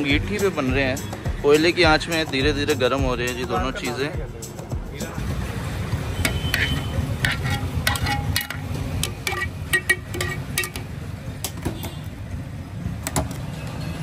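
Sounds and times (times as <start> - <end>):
low street rumble: 0.0 - 14.0
metal utensils clinking: 6.1 - 11.6.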